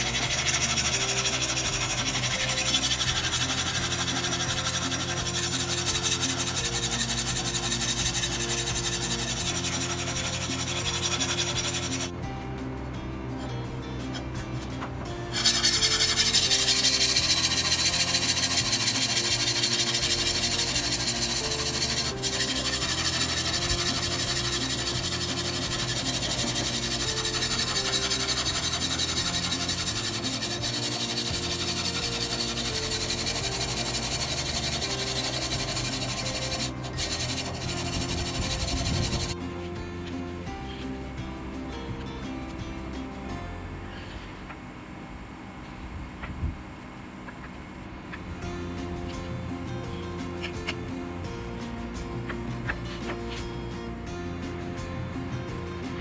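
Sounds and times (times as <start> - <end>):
abrasive rubbing on workpiece: 0.0 - 12.1, 14.1 - 39.4
background music with low notes: 0.0 - 56.0.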